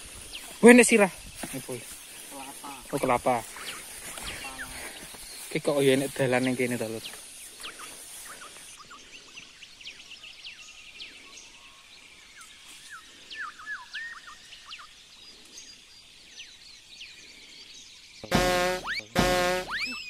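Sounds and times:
wild birds chirping: 0.0s - 20.0s
bird trill: 18.2s - 20.0s.

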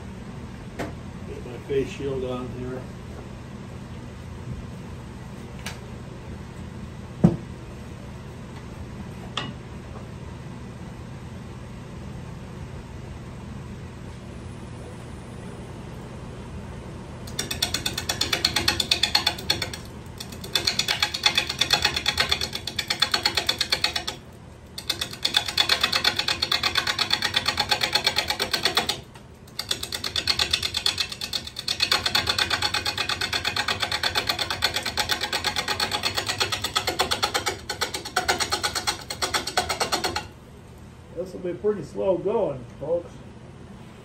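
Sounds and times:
gouge chattering on spinning wood: 17.3s - 40.4s.

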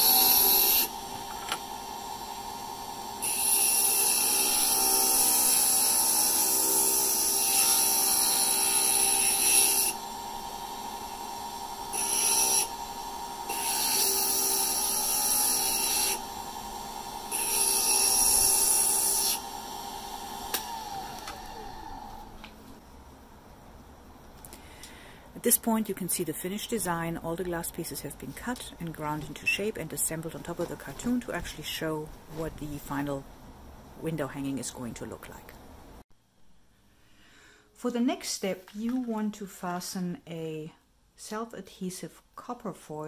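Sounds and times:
grinder motor whine: 0.0s - 22.4s.

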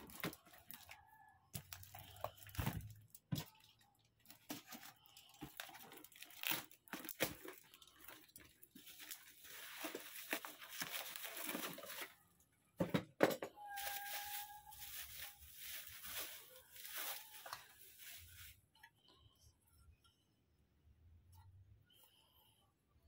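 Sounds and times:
bubble wrap rustling and crinkling: 0.0s - 12.3s, 13.6s - 18.7s.

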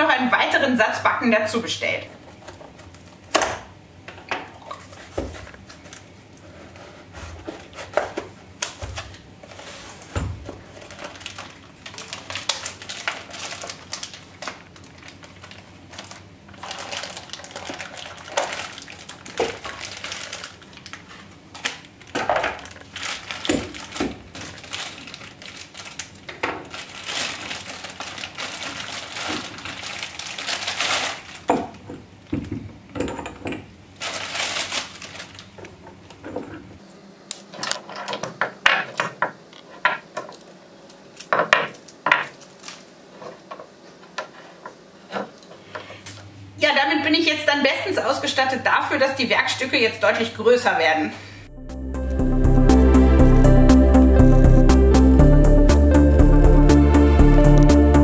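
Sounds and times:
plastic bag crinkling: 10.6s - 31.8s, 34.0s - 36.3s, 42.4s - 43.0s
metal parts clinking on wood: 37.3s - 39.2s.

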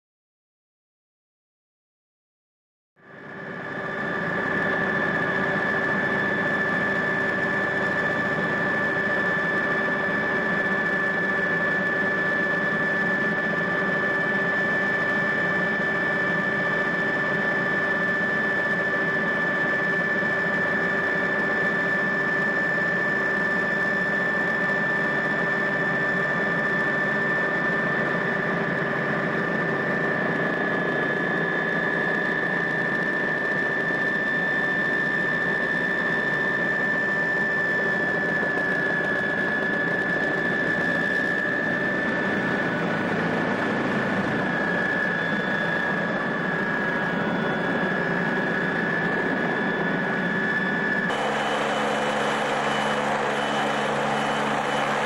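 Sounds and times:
helicopter engine hum: 3.1s - 55.0s
high machine whine: 50.5s - 55.0s.

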